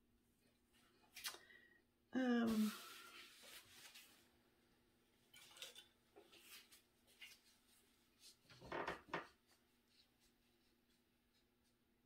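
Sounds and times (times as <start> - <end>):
rustling rub: 2.5 - 4.3
soft rustling handling noise: 2.5 - 4.5, 5.2 - 8.7, 9.3 - 11.9.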